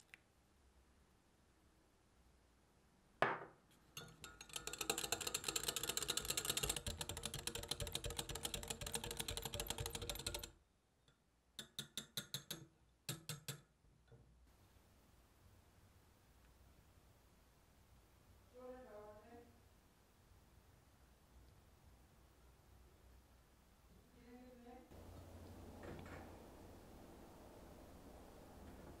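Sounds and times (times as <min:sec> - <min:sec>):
whisk clattering against glass: 0:03.9 - 0:10.5.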